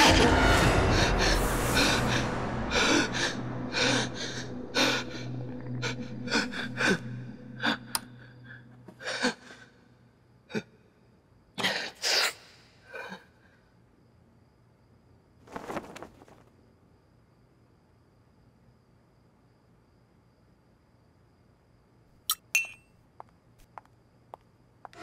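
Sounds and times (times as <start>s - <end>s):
low music drone: 0.0s - 8.8s.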